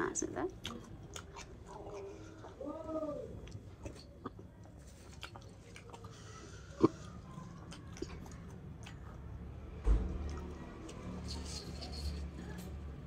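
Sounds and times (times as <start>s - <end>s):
person chewing food: 0.5s - 12.6s
low thump: 9.8s - 10.6s.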